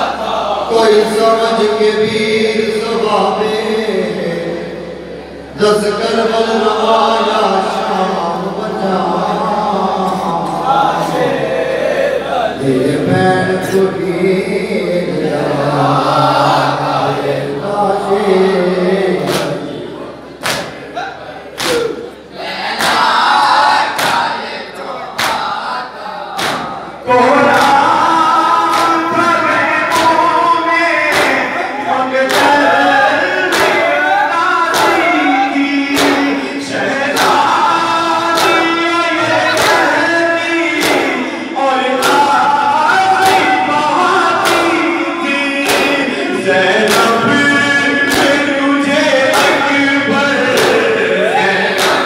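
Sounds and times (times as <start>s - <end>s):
men chanting in unison: 0.0s - 52.0s
crowd chest-beating: 20.3s - 52.0s
hands striking chests: 40.8s - 41.2s, 45.6s - 46.0s.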